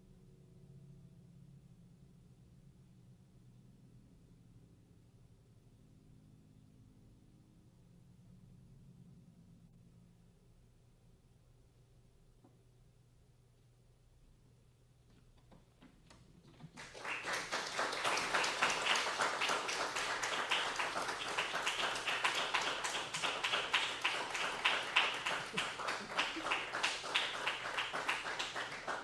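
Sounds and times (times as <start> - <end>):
audience applause: 16.6 - 29.0.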